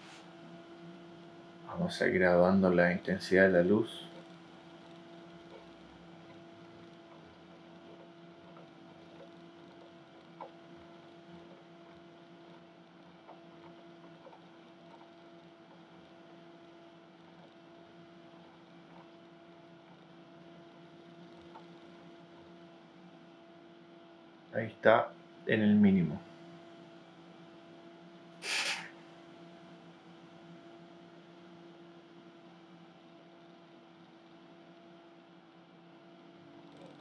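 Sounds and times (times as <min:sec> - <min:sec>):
faint electrical hum: 0:00.0 - 0:37.0
light hiss: 0:28.4 - 0:29.0.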